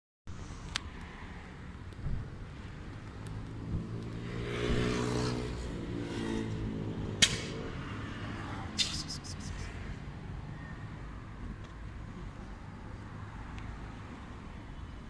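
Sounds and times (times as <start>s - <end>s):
car passing by: 2.3s - 11.6s
sharp click: 7.2s - 7.5s, 8.8s - 9.6s.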